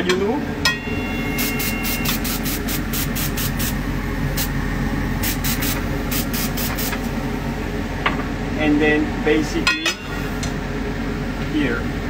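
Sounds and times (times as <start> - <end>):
air compressor humming: 0.0 - 12.0
airbrush spraying bursts: 1.3 - 4.6, 5.2 - 7.2.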